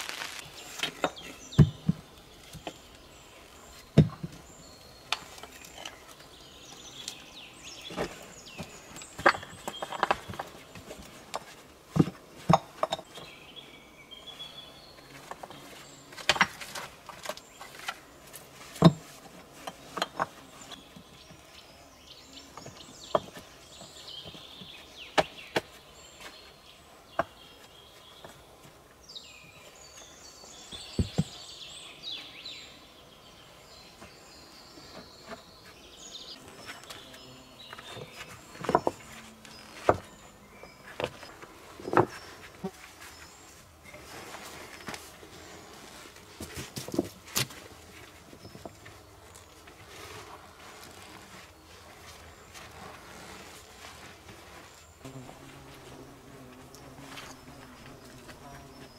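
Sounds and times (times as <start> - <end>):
birds chirping: 0.0 - 58.9
flat stones clacking together: 9.0 - 10.6, 11.3 - 13.3.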